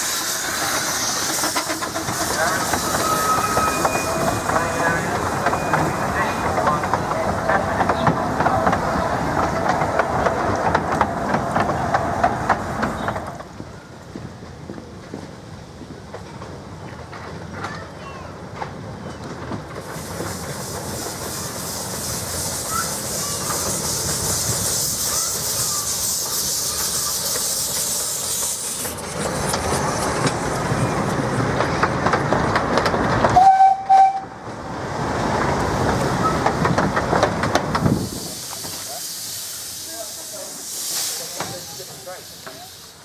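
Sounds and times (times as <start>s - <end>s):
steam hissing: 0.0s - 13.5s, 19.7s - 34.1s, 34.9s - 43.0s
carriages rattling over rail joints: 0.1s - 42.9s
train whistle blast: 33.4s - 34.4s.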